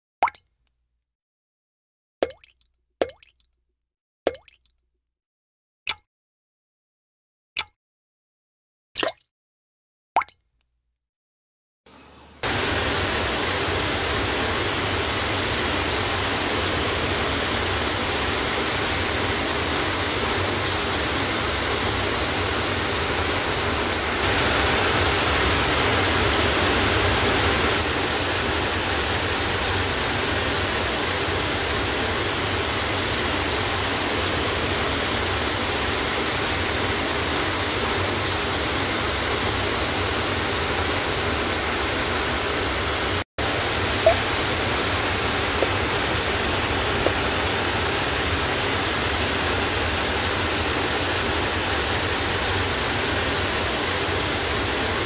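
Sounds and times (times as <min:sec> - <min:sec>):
steady rushing noise: 0:12.4 - 0:34.6.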